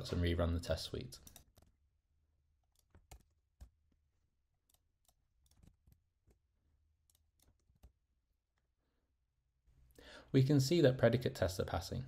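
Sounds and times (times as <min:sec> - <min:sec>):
keyboard and mouse clicks: 0:01.2 - 0:01.8, 0:02.6 - 0:03.9, 0:04.6 - 0:08.0.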